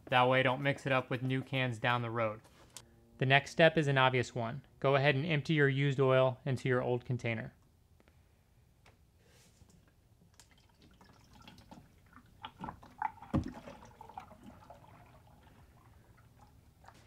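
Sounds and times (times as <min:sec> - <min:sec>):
oil trickling into a plastic jug: 0:09.7 - 0:17.0.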